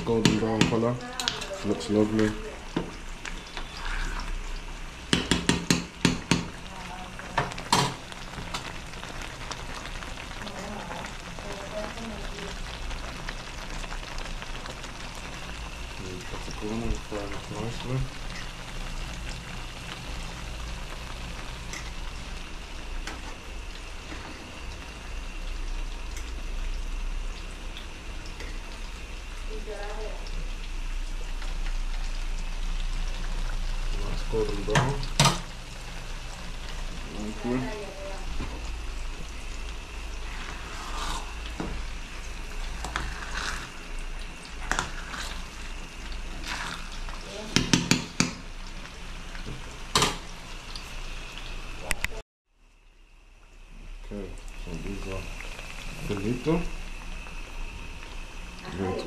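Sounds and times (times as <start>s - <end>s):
oil sizzling in a pan: 0.0s - 59.0s
utensil knocking on pan: 0.2s - 0.8s, 5.1s - 6.6s, 47.5s - 48.4s.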